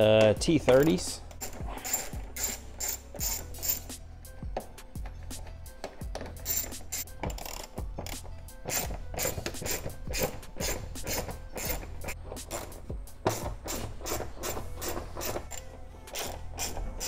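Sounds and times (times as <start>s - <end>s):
hand ratchet clicking: 0.2s - 4.0s, 5.4s - 17.0s.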